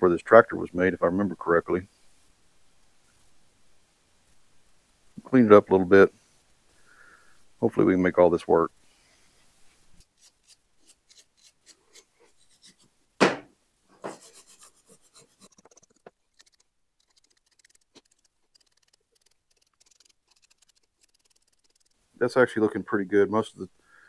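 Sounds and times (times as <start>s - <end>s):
loud thump: 13.2s - 13.5s
scraping metal terminals: 14.1s - 22.0s.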